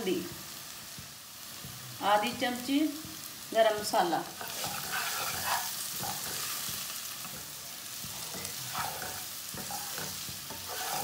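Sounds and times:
okra sizzling in hot oil: 0.0 - 11.0
wooden spatula scraping a pan: 4.4 - 11.0.

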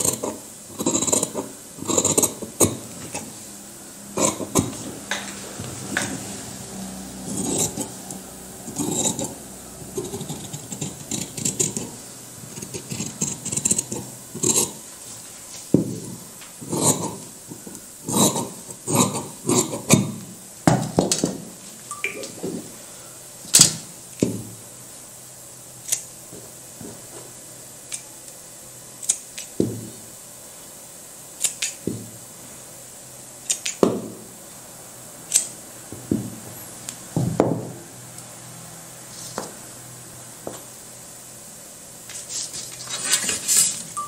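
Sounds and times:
scissors snipping fabric: 0.0 - 2.8, 31.4 - 31.8.

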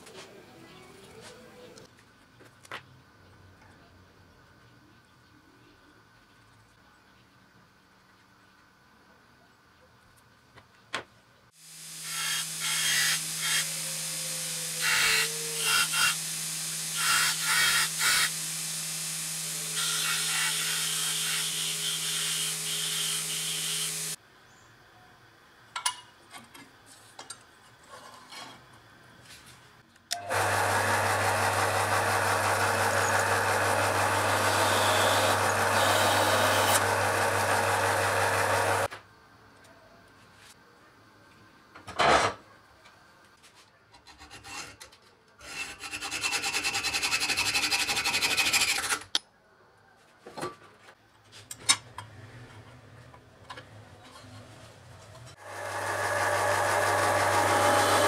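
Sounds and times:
belt sander grinding brass: 11.9 - 24.2, 30.2 - 38.9, 55.3 - 58.0
drill press boring through brass: 12.0 - 24.2, 30.2 - 38.9, 55.4 - 58.0.

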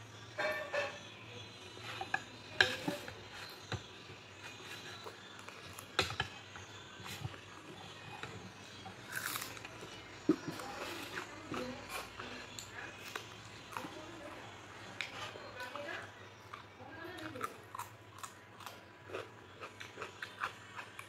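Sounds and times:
chewing and mouth noises: 16.4 - 21.0.

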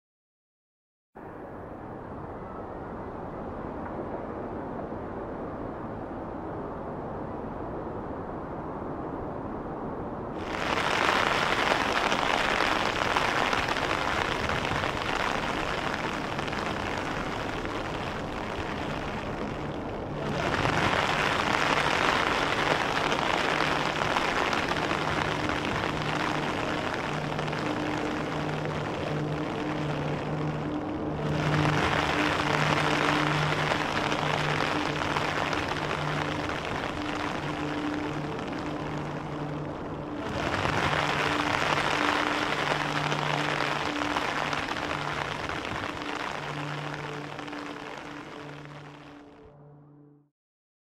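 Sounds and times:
low rumble: 1.2 - 50.2
low sustained musical notes: 1.2 - 50.2
heavy rain hissing: 10.4 - 49.4.

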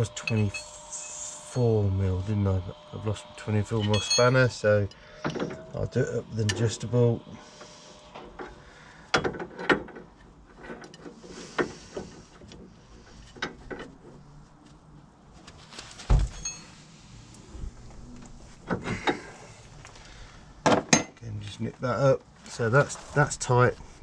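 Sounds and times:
metal clinks: 3.8 - 4.4, 16.3 - 16.8.

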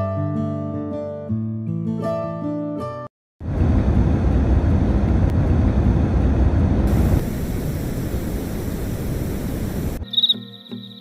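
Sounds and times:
rushing white noise: 3.6 - 10.0.

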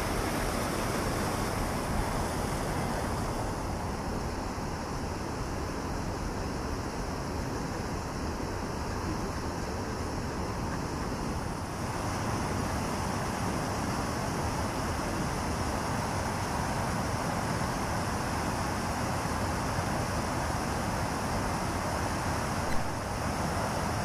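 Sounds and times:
water rushing over a weir: 0.0 - 7.0, 8.5 - 24.0
brief tap: 22.7 - 22.9.

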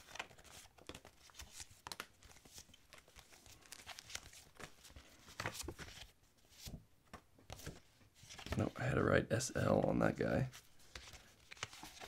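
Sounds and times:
paper stickers rustling: 0.0 - 6.7.

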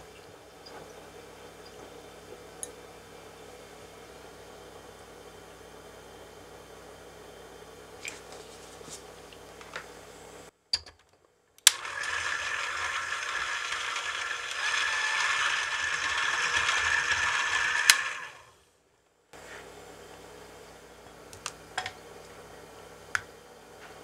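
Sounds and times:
electric hand mixer whirring: 11.7 - 18.6.

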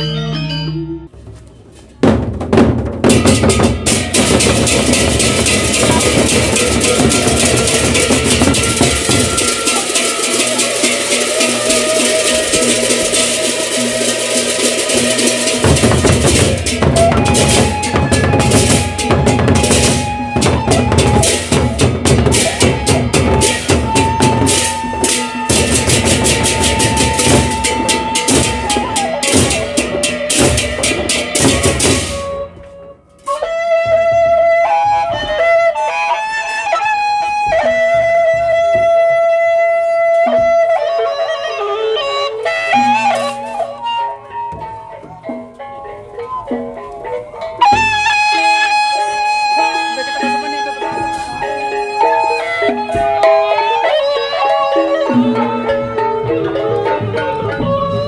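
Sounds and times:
wind instrument slow melody: 0.0 - 1.2, 3.4 - 58.0
drums and cymbals ensemble: 0.0 - 58.0.

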